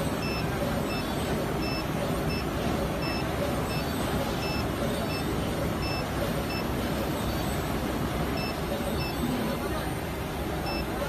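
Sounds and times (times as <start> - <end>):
machinery and hall noise: 0.0 - 11.0
short high electronic beeps: 0.2 - 6.7, 10.6 - 10.9.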